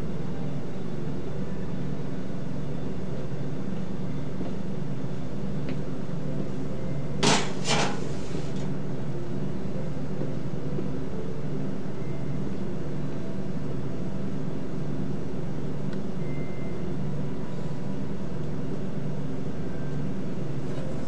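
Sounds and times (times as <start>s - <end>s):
steady low hum: 0.0s - 21.0s
metal pans clattering: 7.2s - 8.2s.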